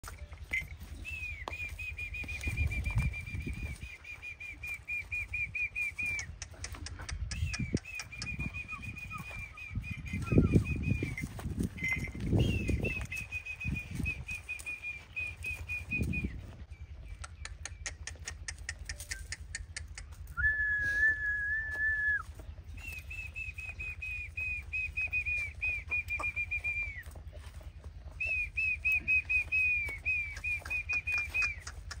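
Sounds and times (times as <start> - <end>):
quick clicks: 6.0 - 9.2, 17.1 - 20.4, 29.4 - 32.0
long steady whistle: 20.4 - 22.2.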